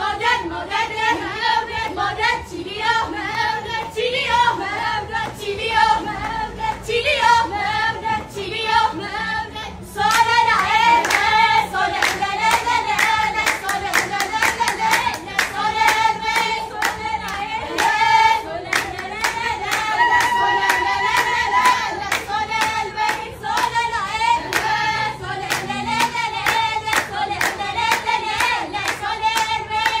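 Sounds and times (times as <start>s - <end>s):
women singing together: 0.0s - 30.0s
hand claps: 10.1s - 11.3s, 12.0s - 18.0s, 18.7s - 23.8s, 24.4s - 24.7s, 25.5s - 30.0s.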